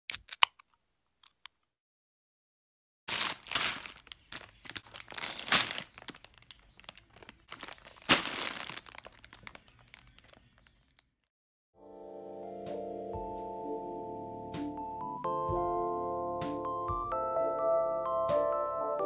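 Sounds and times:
plastic bags crinkling: 0:03.1 - 0:11.0.

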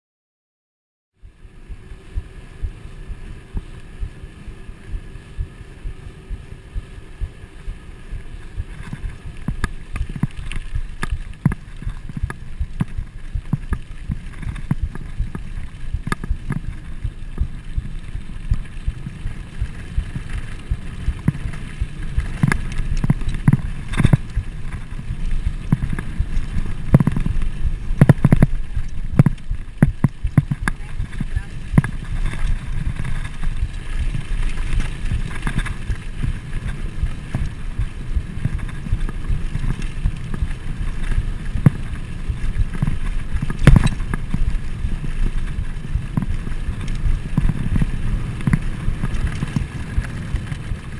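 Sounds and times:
bike tyres rumbling over dirt: 0:01.2 - 0:50.9
bike rattling and knocking: 0:02.1 - 0:50.9.

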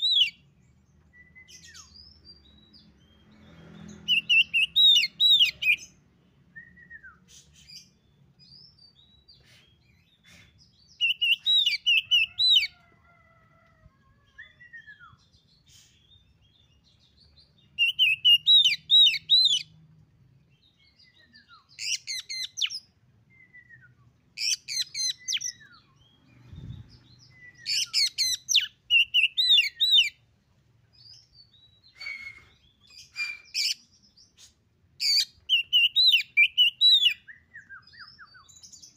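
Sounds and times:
bird chirping and whistling: 0:00.0 - 0:00.4, 0:04.1 - 0:05.9, 0:11.0 - 0:12.7, 0:17.8 - 0:19.6, 0:21.7 - 0:26.0, 0:26.6 - 0:30.2, 0:31.8 - 0:33.9, 0:35.0 - 0:38.9.

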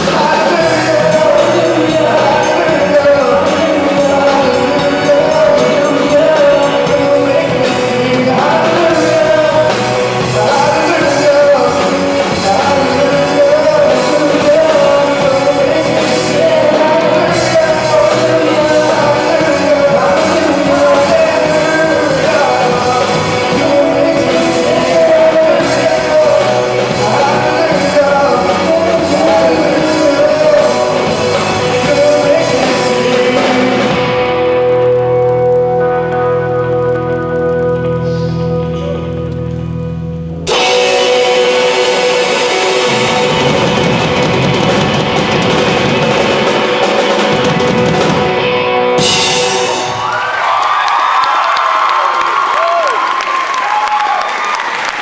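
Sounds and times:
young men singing: 0:00.0 - 0:34.1
electric guitar: 0:00.0 - 0:55.0.

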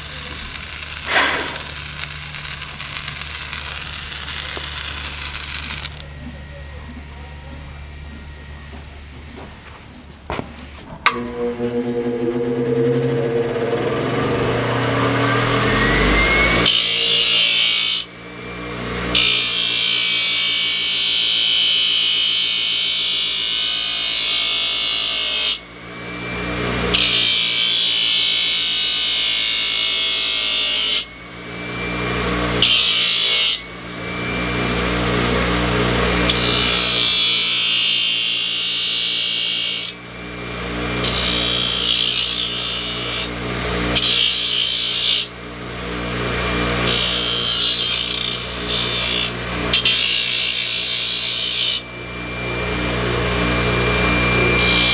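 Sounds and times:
power tool motor humming: 0:00.0 - 0:06.1, 0:46.5 - 0:54.9.

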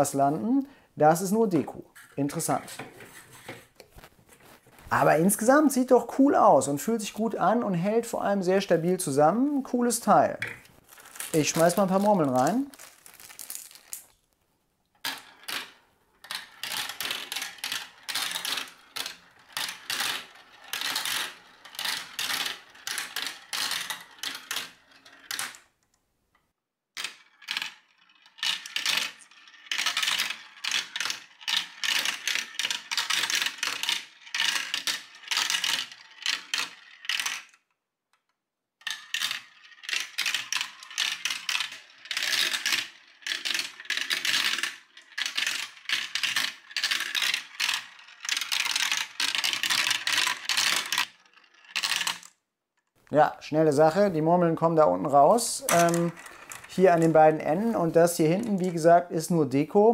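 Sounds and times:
marbles clicking down plastic tracks: 0:10.0 - 0:14.2, 0:15.0 - 0:25.8, 0:27.0 - 0:52.4, 0:55.6 - 0:59.0.

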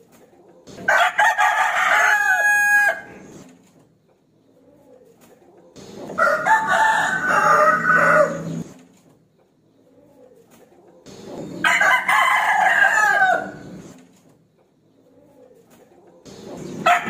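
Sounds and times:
rooster crowing: 0:00.9 - 0:03.3, 0:06.2 - 0:08.7, 0:11.6 - 0:13.8.

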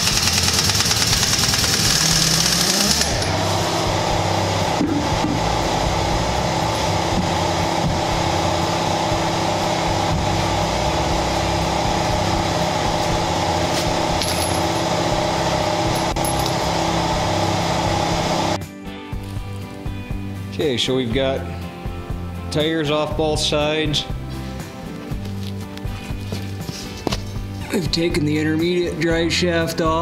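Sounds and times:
machine droning: 0:00.0 - 0:18.6.

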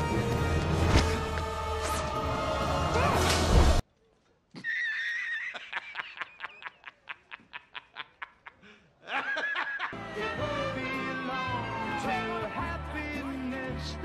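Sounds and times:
music: 0:00.0 - 0:03.8, 0:09.9 - 0:14.0
man cackling laugh: 0:04.6 - 0:10.0.

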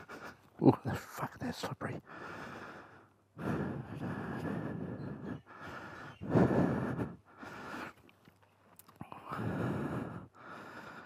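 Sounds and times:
person breathing close: 0:00.0 - 0:00.5, 0:02.0 - 0:08.1, 0:09.0 - 0:11.0.

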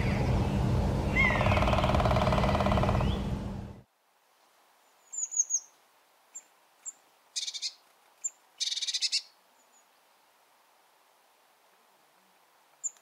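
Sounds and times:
bird calling high notes: 0:01.1 - 0:03.3
bird buzzy rattles: 0:01.4 - 0:03.2.

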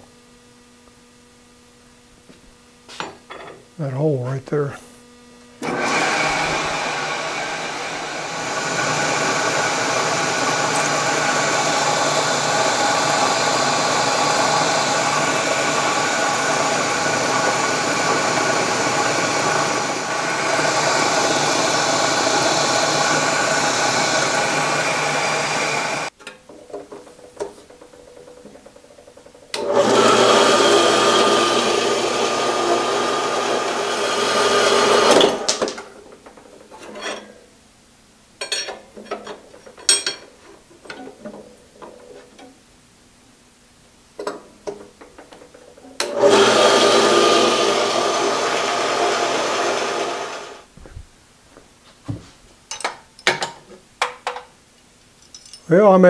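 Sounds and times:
milling machine drilling steel: 0:05.6 - 0:26.1, 0:29.5 - 0:35.6, 0:46.0 - 0:50.6.

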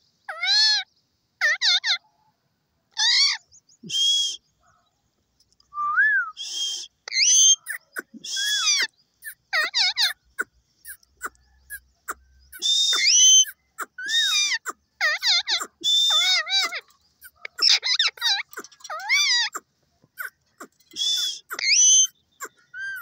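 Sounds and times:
parakeet screeching and squawking: 0:00.3 - 0:02.1, 0:03.0 - 0:03.4, 0:07.1 - 0:23.0.

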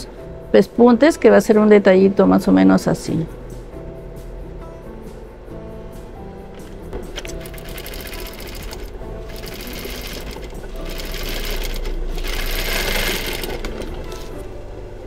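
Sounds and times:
sewing machine stitching: 0:07.1 - 0:14.4.

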